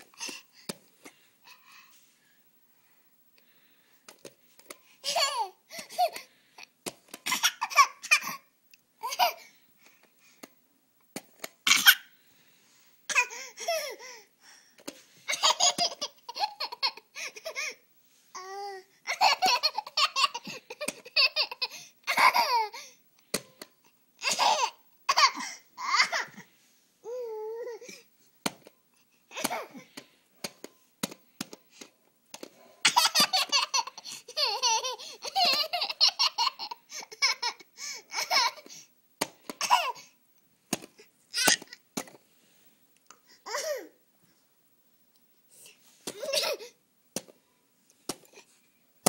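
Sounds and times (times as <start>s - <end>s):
toddler giggling: 32.9s - 38.7s.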